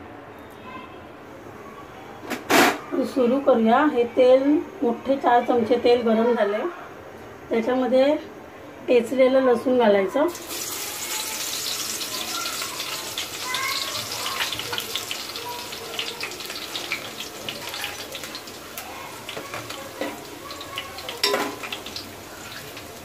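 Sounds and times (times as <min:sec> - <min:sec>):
garlic sizzling in hot oil: 0:10.3 - 0:23.0
metal ladle knocking pot: 0:21.2 - 0:21.6.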